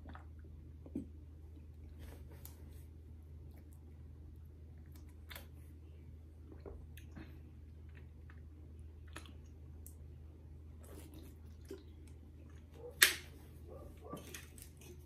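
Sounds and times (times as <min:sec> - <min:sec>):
faint chewing: 0:06.4 - 0:10.1, 0:10.7 - 0:13.0.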